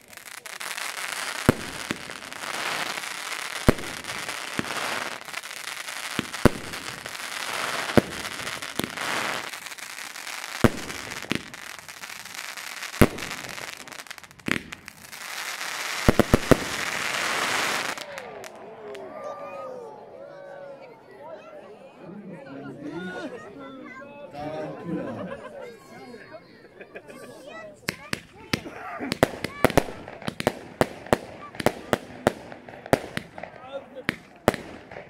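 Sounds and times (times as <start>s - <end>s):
fireworks bangs: 0.0s - 19.1s, 27.8s - 35.0s
fizzing crackle of fireworks: 0.0s - 19.2s, 27.2s - 35.0s.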